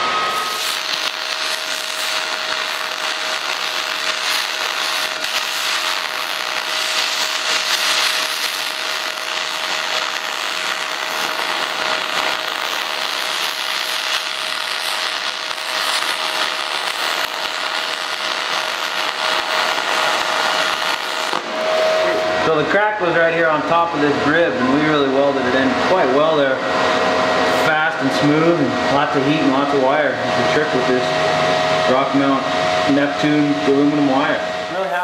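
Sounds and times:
welding arc crackling hiss: 0:00.0 - 0:24.0, 0:31.9 - 0:35.0.

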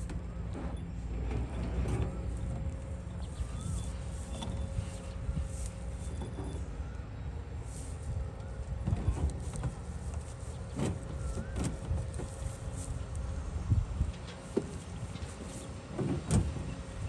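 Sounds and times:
faint knocks and clanks: 0:00.0 - 0:06.7, 0:14.0 - 0:16.8
distant diesel machinery rumbling: 0:00.0 - 0:17.0.

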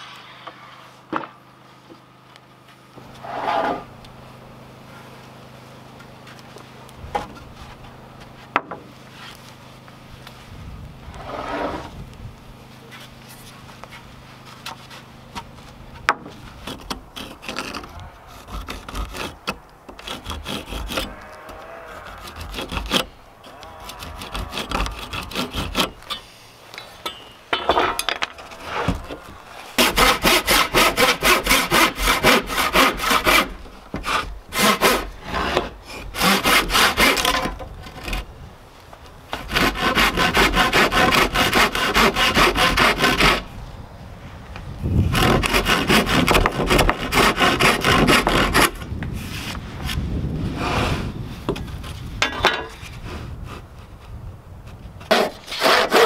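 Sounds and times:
handsaw cutting wood: 0:03.1 - 0:03.9, 0:16.2 - 0:26.4, 0:28.4 - 0:38.2, 0:39.3 - 0:43.5, 0:45.0 - 0:49.6, 0:55.1 - 0:56.0.

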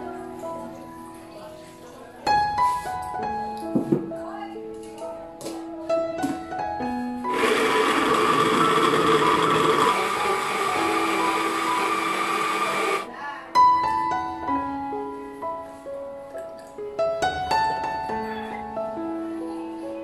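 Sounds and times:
piano music: 0:00.0 - 0:20.0
blender motor whining and churning: 0:07.3 - 0:13.1.

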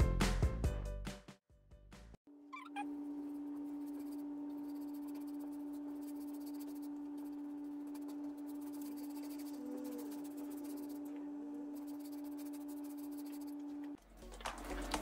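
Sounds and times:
steady hum: 0:02.4 - 0:14.0
paintbrush brushing on wood: 0:03.6 - 0:11.1, 0:11.7 - 0:13.9.

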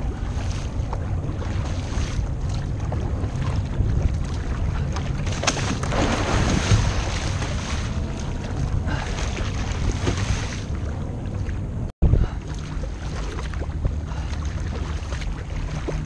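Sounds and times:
water splashing against kayak hull: 0:00.0 - 0:16.0
wind buffeting microphone: 0:00.0 - 0:16.0.

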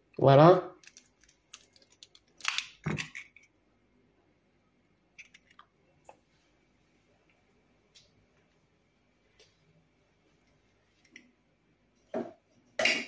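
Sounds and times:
eggshell crunching: 0:00.8 - 0:03.5.

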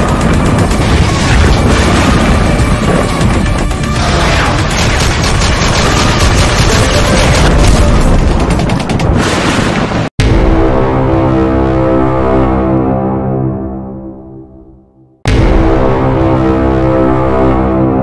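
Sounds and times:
action music: 0:00.0 - 0:09.2, 0:10.2 - 0:18.0
machine-gun fire: 0:00.0 - 0:09.7
deep boom: 0:09.0 - 0:12.7, 0:15.3 - 0:17.1.

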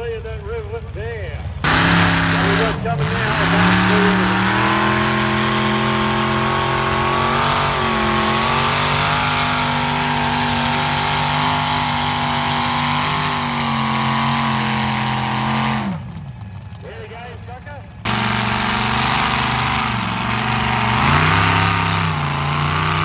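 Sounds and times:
tractor engine at high revs: 0:01.6 - 0:23.0.

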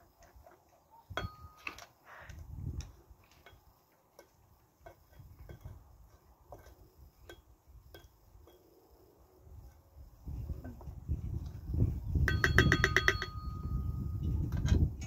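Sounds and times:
ringing metal clink: 0:01.1 - 0:01.8, 0:12.3 - 0:14.2.

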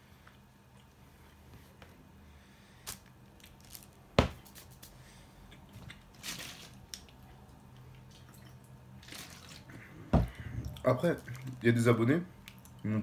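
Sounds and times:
plastic bottle crinkling: 0:02.9 - 0:04.9, 0:06.1 - 0:07.1.

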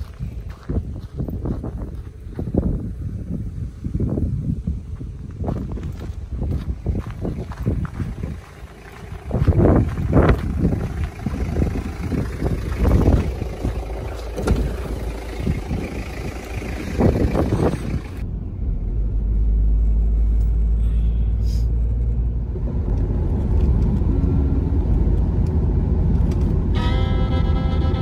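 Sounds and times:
wind buffeting microphone: 0:00.0 - 0:19.6
engine and tyre rumble in cabin: 0:00.0 - 0:28.0.

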